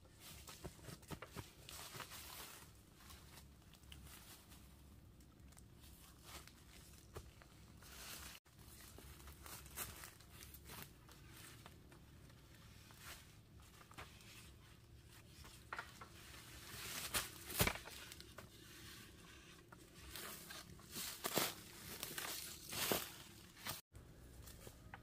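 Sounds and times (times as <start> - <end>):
leaf litter crunching underfoot: 7.8 - 11.7, 20.0 - 23.8.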